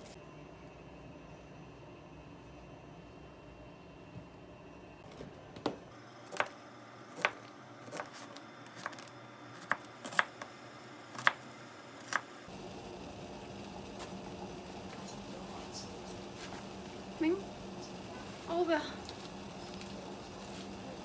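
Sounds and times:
knife chopping on cutting board: 7.2s - 8.2s.

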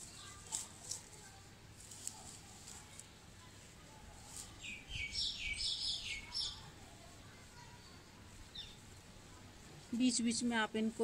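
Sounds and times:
rustling of dry grass: 0.0s - 11.0s
bird chirping: 4.6s - 6.7s.

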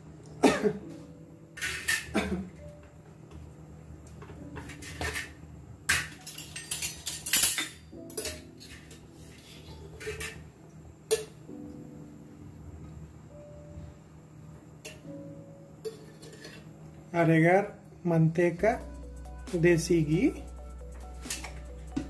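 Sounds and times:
metal spoon clinking on pots: 5.9s - 9.1s, 15.8s - 16.6s.

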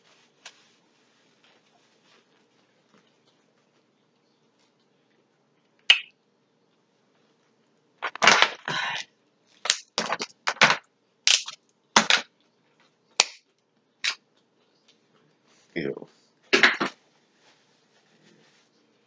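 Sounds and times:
crab shells cracking: 9.6s - 12.2s.

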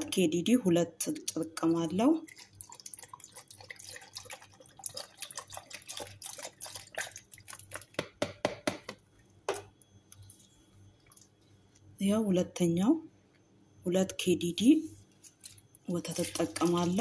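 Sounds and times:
liquid dripping: 1.1s - 8.4s, 15.4s - 17.0s
milk pouring into blender jar: 2.2s - 8.0s, 16.1s - 17.0s.

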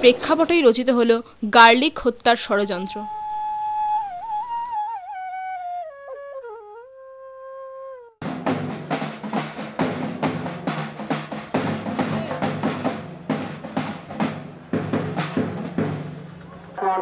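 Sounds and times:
flute holding bending note: 2.9s - 8.2s
fast loud drumming with rolls: 8.2s - 16.8s.

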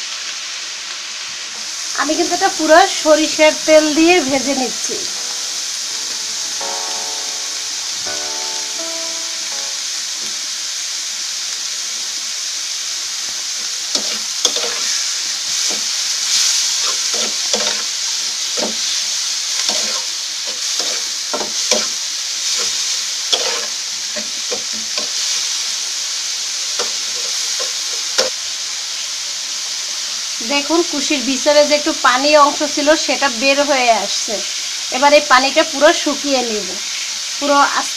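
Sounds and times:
seeds sizzling in oil: 0.0s - 37.9s
spatula scraping and knocking pan: 13.9s - 15.0s, 15.6s - 17.9s, 18.6s - 19.0s, 19.6s - 25.2s.

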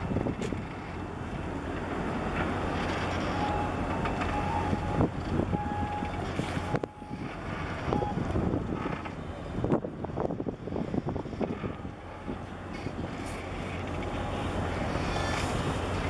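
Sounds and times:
wind buffeting microphone: 0.0s - 3.2s, 3.8s - 16.0s
low engine drone: 0.0s - 16.0s.

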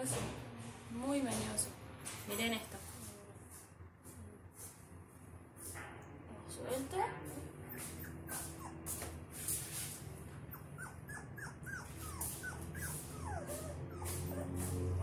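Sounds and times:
puppy whimpering high yips: 7.7s - 9.0s, 10.5s - 15.0s.

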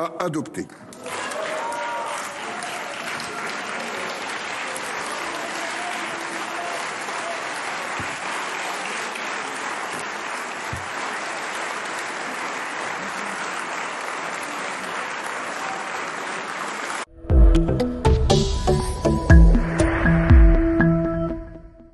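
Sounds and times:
crowd applauding: 0.9s - 17.1s.

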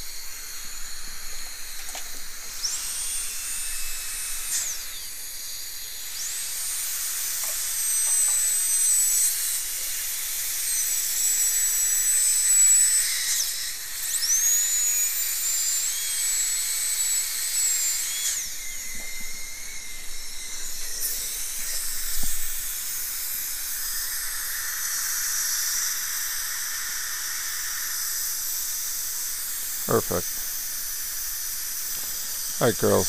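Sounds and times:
dental drill whining: 0.0s - 33.0s.

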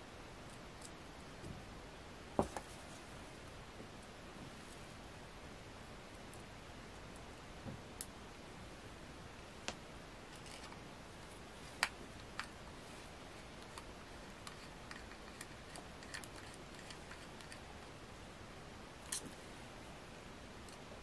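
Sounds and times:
small metal and plastic parts clicking: 13.6s - 17.7s.

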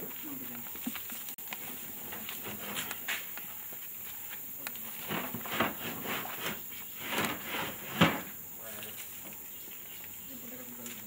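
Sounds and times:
wooden crate scuffing and knocking: 1.6s - 3.3s, 4.8s - 8.4s.

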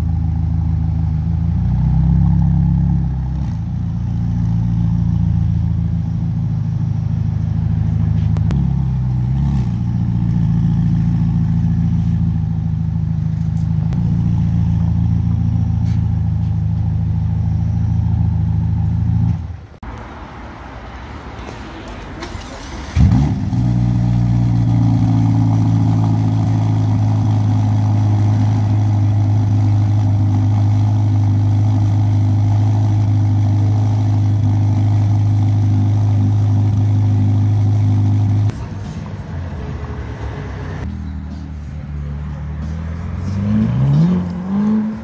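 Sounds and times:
car engine starting and idling: 21.8s - 45.0s
car engine revving: 42.0s - 45.0s.

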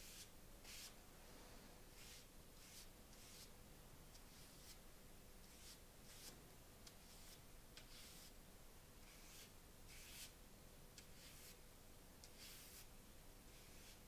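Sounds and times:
paintbrush swishing on paper: 0.0s - 1.0s, 2.0s - 3.5s, 4.3s - 4.8s, 5.4s - 6.4s, 7.0s - 8.4s, 9.0s - 10.4s, 11.0s - 11.6s, 12.3s - 12.9s, 13.5s - 14.0s.

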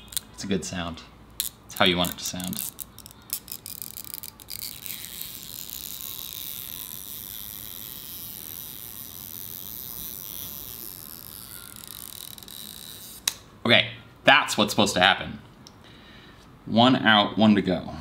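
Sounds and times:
adhesive strip crackling as pulled: 1.4s - 13.4s.

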